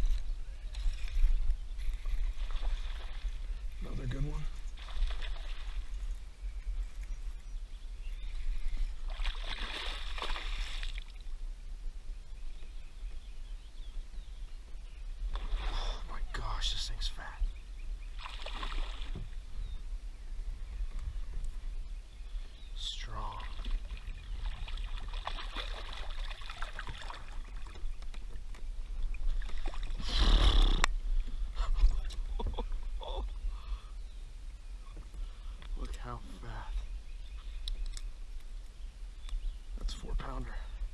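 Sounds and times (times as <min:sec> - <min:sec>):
paddle splashing water: 0:00.0 - 0:03.8, 0:04.5 - 0:06.2, 0:08.3 - 0:11.3, 0:15.2 - 0:16.3, 0:18.1 - 0:19.4, 0:23.3 - 0:30.4
water splashing and dripping: 0:09.1 - 0:11.3, 0:23.2 - 0:30.0.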